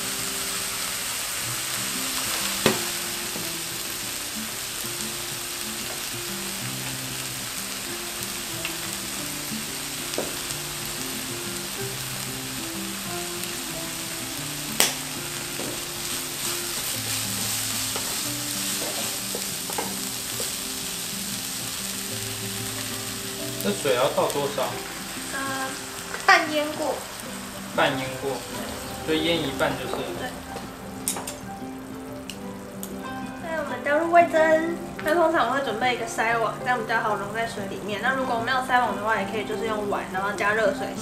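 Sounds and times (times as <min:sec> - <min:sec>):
food sizzling in a wok: 0:00.0 - 0:41.0
spatula knocking on pan: 0:02.6 - 0:03.5, 0:17.9 - 0:20.6
light spatula taps: 0:16.8 - 0:20.6.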